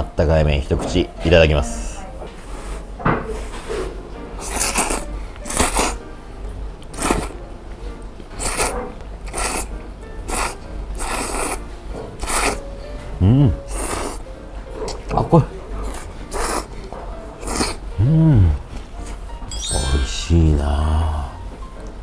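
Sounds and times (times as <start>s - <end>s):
man slurping noodles: 4.4s - 6.0s, 6.9s - 7.4s, 8.4s - 9.7s, 10.3s - 11.6s, 12.2s - 12.6s, 13.7s - 14.2s, 15.9s - 16.7s, 17.4s - 17.8s.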